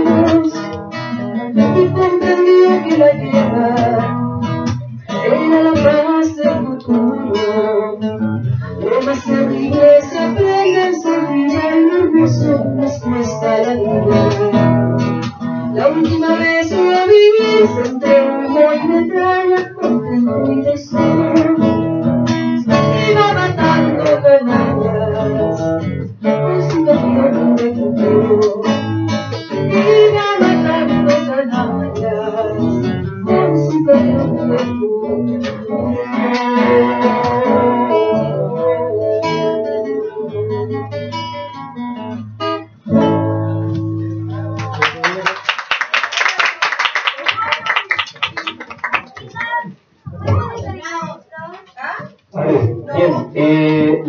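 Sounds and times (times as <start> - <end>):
voices singing: 0.0 - 15.0, 15.7 - 22.0, 22.6 - 40.8
acoustic guitar strumming: 0.0 - 44.9, 50.2 - 54.0.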